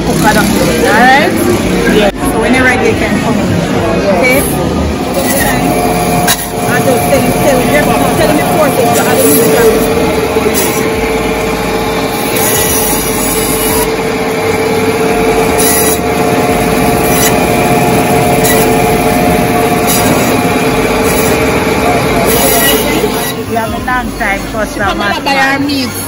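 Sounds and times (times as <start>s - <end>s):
band saw humming: 0.0s - 26.0s
saw cutting through bone: 5.1s - 11.2s, 11.9s - 23.4s.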